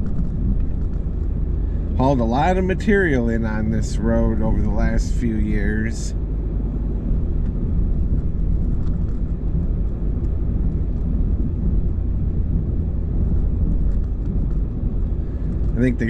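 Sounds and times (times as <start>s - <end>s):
truck engine and tyres rumbling: 0.0s - 16.0s.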